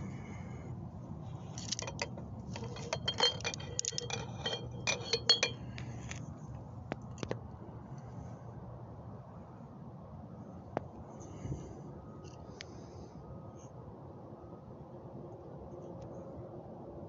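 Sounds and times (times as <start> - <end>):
low steady hum: 0.0 - 17.0
glass candle holders clinking: 1.6 - 5.6.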